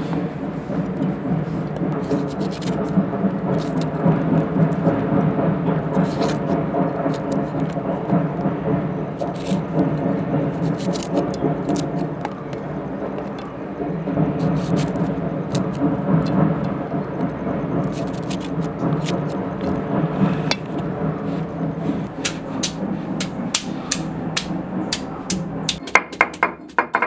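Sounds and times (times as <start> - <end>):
low rumble with faint hum: 0.0 - 25.8
knife clicks slitting chillies: 2.0 - 4.0, 5.9 - 7.8, 9.2 - 9.8, 10.5 - 12.6, 14.4 - 16.8, 17.8 - 19.8.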